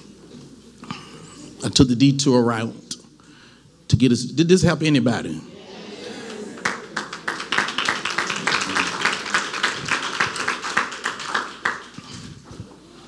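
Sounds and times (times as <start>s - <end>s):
crowd clapping: 6.2s - 12.5s.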